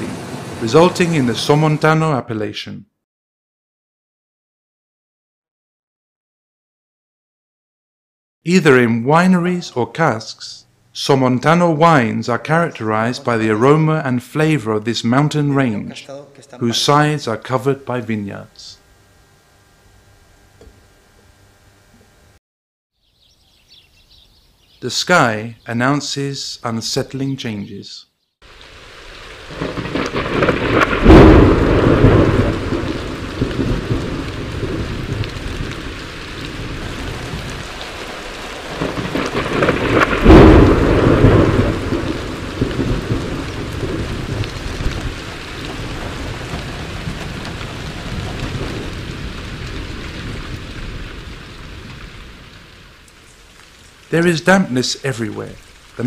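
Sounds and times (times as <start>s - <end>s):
thunder rumbling: 0.0s - 1.9s, 28.5s - 56.0s
heavy rain: 0.0s - 2.0s, 28.4s - 56.0s.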